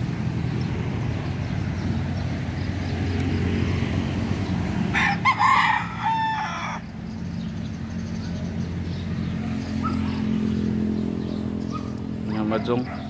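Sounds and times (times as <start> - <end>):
rooster crowing: 4.9 - 6.9.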